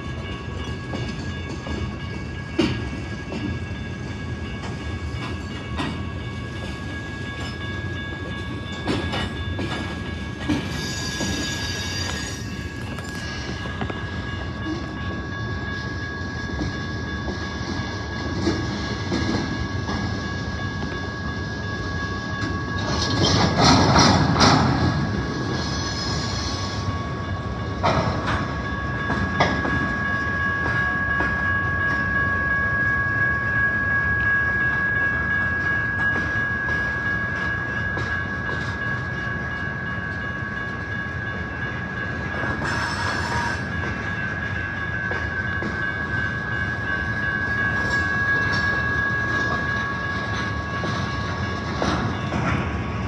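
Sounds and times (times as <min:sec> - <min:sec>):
high-pitched wheel squeal: 0:10.7 - 0:13.6, 0:42.6 - 0:43.7.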